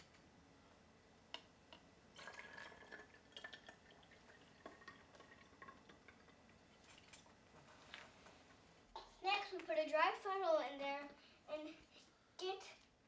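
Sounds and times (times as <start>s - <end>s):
liquid trickling through funnel: 2.2s - 7.3s.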